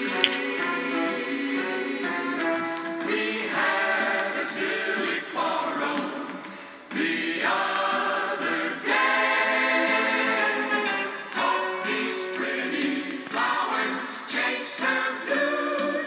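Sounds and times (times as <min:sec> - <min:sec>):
music with singing from small speaker: 0:00.0 - 0:16.0.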